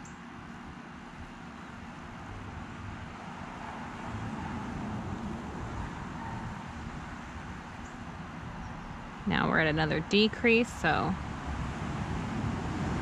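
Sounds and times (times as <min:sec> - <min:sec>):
distant road traffic rumble: 0:00.0 - 0:13.0
vehicle passing: 0:01.7 - 0:13.0.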